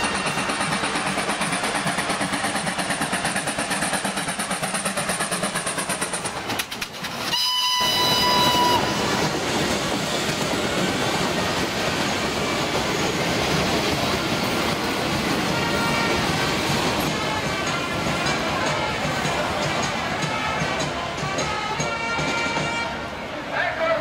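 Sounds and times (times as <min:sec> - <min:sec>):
steam locomotive beat: 0:00.0 - 0:23.3
steam whistle blast: 0:07.3 - 0:09.2
hubbub of waiting crowd: 0:14.4 - 0:24.0.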